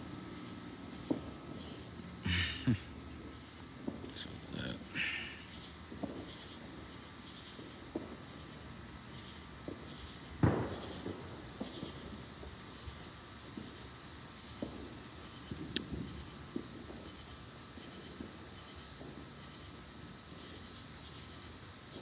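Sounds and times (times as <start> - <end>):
crickets trilling: 0.0 - 22.0
insect calling in short pulses: 1.6 - 3.1, 4.0 - 5.8.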